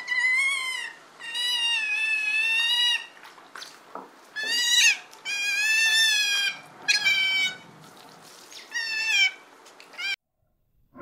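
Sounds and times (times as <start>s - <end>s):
otter high-pitched calls: 4.4s - 7.6s.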